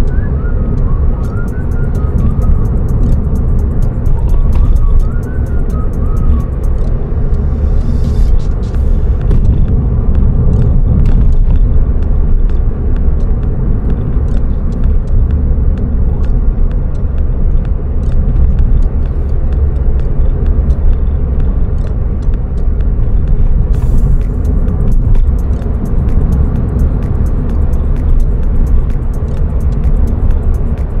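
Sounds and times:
car engine and road noise rumble: 0.0 - 31.0.

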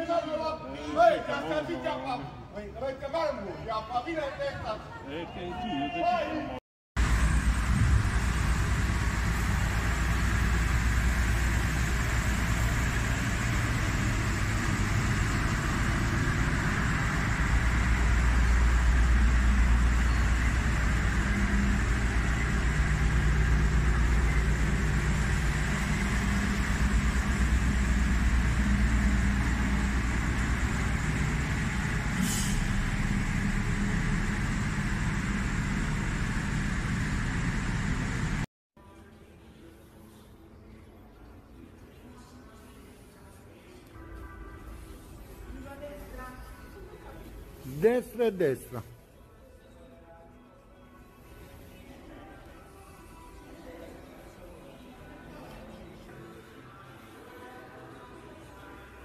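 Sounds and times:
truck engines rumbling: 7.0 - 38.5.

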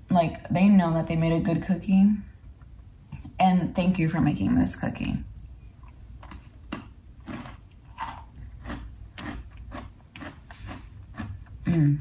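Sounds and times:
cookie crunching while chewing: 6.2 - 11.7.

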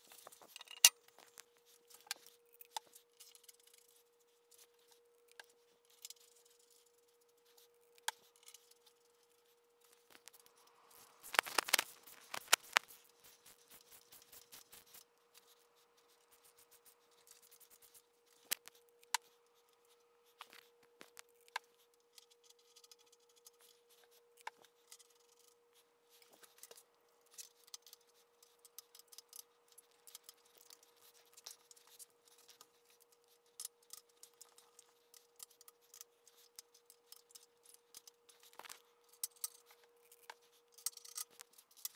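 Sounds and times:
faint steady hum: 0.0 - 41.9
metal tools clicking and clinking: 0.4 - 1.0.

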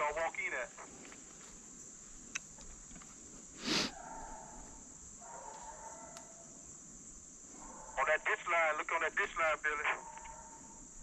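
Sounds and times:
steady high hiss: 0.0 - 4.0, 6.2 - 11.0
short loud hiss burst: 3.6 - 3.9
hounds baying: 3.9 - 6.6, 7.5 - 8.1, 9.9 - 10.9.

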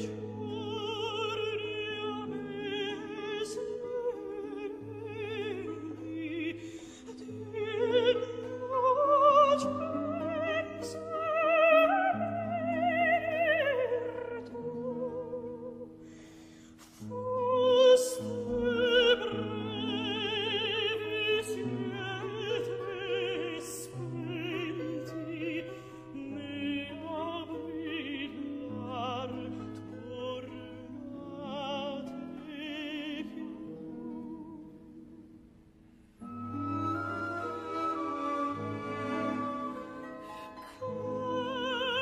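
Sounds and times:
operatic singing with vibrato: 0.0 - 15.8, 17.0 - 34.8, 36.2 - 42.0
orchestral accompaniment: 36.2 - 42.0.

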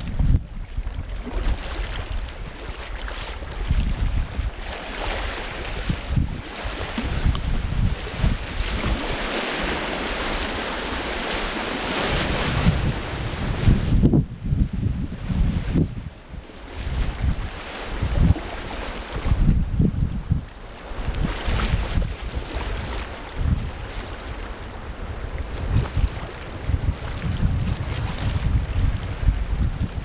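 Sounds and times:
wind buffeting microphone: 0.0 - 30.0
whitewater rushing: 4.4 - 14.0.

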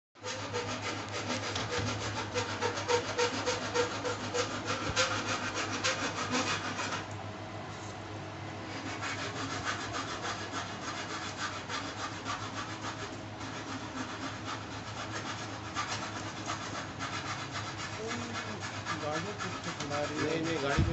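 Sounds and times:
gritty motor rattle: 18.1 - 20.9.

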